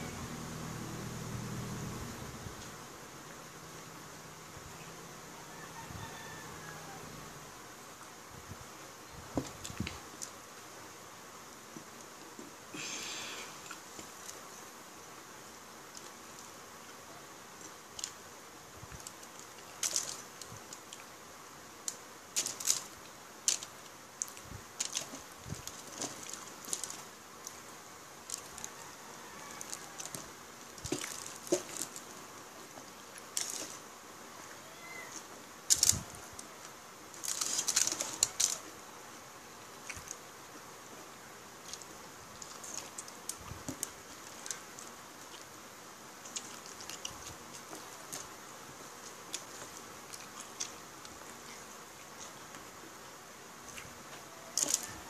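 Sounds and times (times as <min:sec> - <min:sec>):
steady hiss: 0:00.0 - 0:55.0
aluminium foil crinkling: 0:19.0 - 0:21.0, 0:21.8 - 0:27.6, 0:28.2 - 0:28.8, 0:29.5 - 0:32.2, 0:33.2 - 0:33.8, 0:35.7 - 0:36.5, 0:37.1 - 0:38.7, 0:41.6 - 0:45.5, 0:54.4 - 0:55.0.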